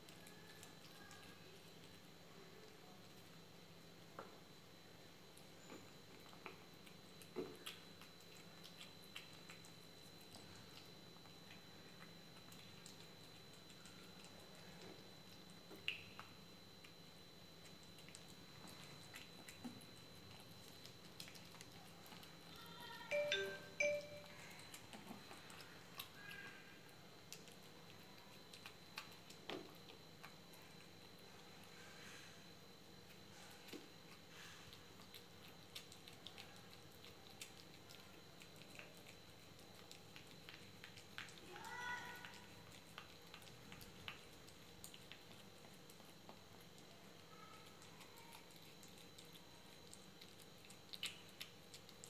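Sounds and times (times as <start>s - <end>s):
kitten chewing and lapping: 0.0s - 52.0s
short musical chime: 23.1s - 24.3s.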